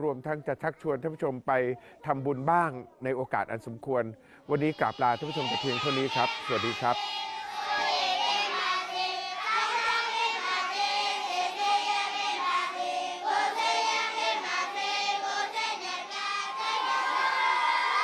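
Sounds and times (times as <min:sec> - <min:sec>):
children singing in unison: 0:04.5 - 0:18.0.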